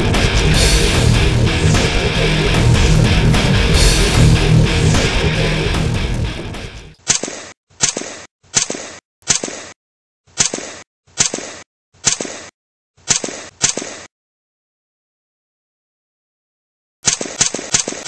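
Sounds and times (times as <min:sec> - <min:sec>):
distorted rock music: 0:00.0 - 0:07.0.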